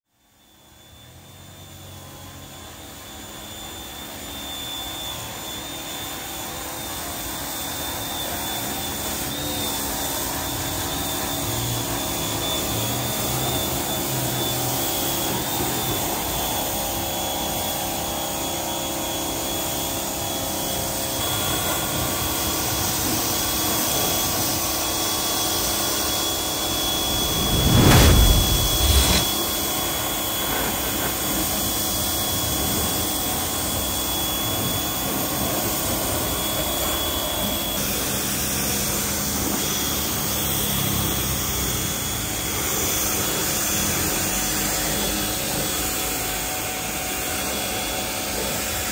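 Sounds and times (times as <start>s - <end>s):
high even whine: 26.4s - 29.3s
low rumble: 26.7s - 29.3s.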